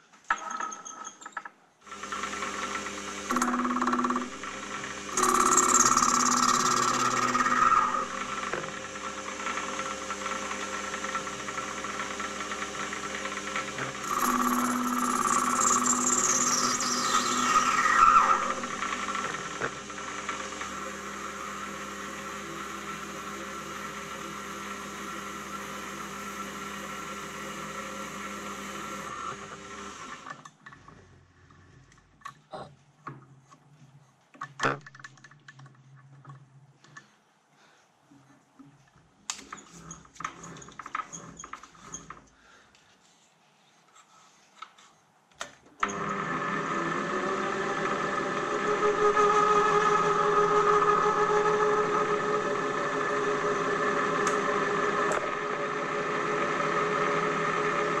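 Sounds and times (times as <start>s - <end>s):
lathe cutting whine: 1.9s - 30.3s, 45.8s - 58.0s
motor and gears humming: 1.9s - 31.6s, 45.8s - 58.0s
knocks and clicks of tooling: 3.3s - 4.4s.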